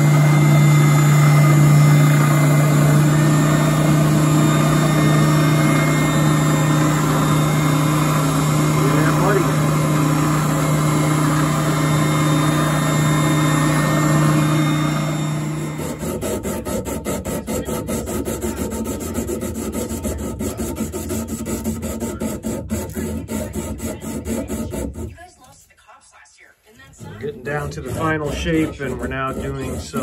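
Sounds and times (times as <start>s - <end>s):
electric motor humming: 0.0s - 25.2s, 26.9s - 30.0s
sandpaper rubbing on wood: 15.8s - 25.2s, 26.9s - 30.0s.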